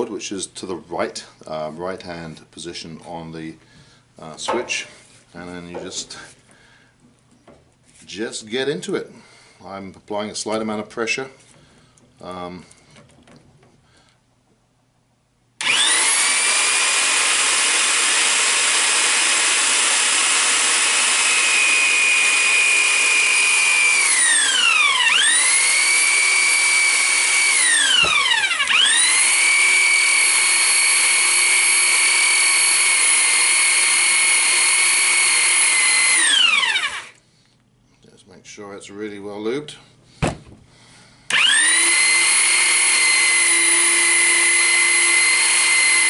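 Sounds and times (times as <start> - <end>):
pipe threader motor whine: 15.6 - 37.2, 41.3 - 46.0.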